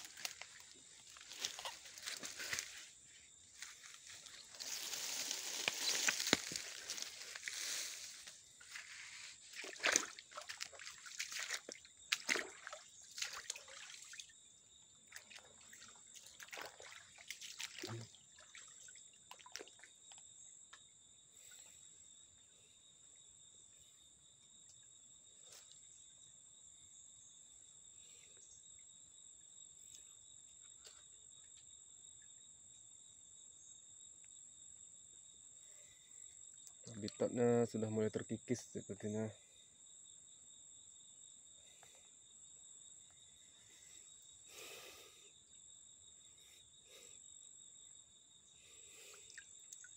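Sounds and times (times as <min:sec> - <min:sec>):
high insect drone: 0:00.0 - 0:49.9
stream water trickling: 0:03.6 - 0:20.3, 0:49.2 - 0:49.9.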